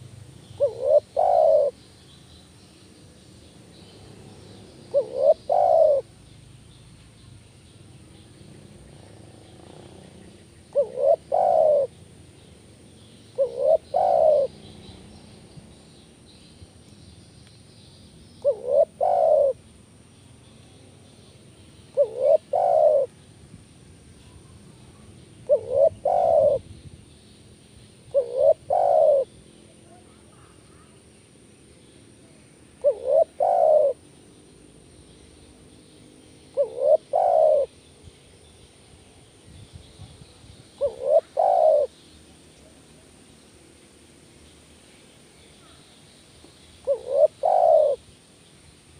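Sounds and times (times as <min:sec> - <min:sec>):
dove cooing: 0:00.0 - 0:01.8, 0:04.9 - 0:06.1, 0:08.8 - 0:12.0, 0:13.3 - 0:14.8, 0:18.4 - 0:19.6, 0:21.9 - 0:23.1, 0:24.9 - 0:26.7, 0:28.1 - 0:30.6, 0:32.8 - 0:34.0, 0:36.5 - 0:37.8, 0:40.8 - 0:41.9, 0:46.8 - 0:48.0.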